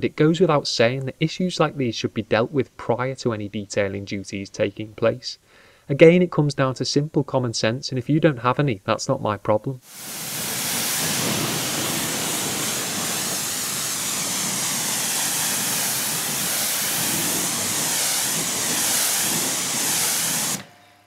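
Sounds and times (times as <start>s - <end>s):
water splashing: 9.9s - 20.1s
pressure washer spraying car: 9.9s - 20.7s.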